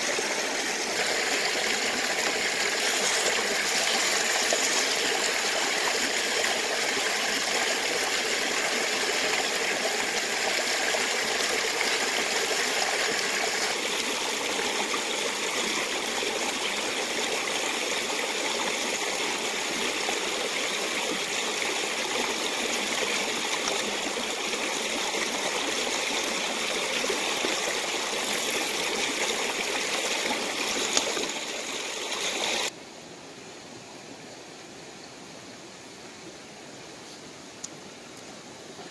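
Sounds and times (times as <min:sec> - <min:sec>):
water rushing and trickling: 0:00.0 - 0:32.8
quiet hiss: 0:32.7 - 0:38.9.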